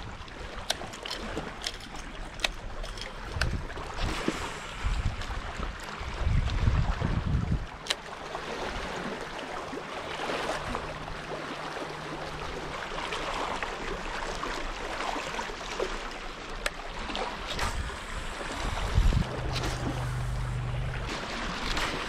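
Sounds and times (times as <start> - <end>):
waves lapping on rocks: 0.0 - 22.0
faint low hum: 17.6 - 22.0.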